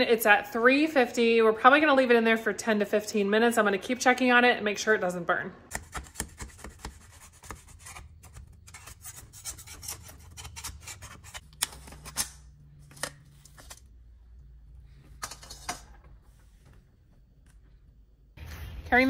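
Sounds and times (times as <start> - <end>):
metal pans scraping and clicking: 7.8 - 13.8, 15.1 - 16.1.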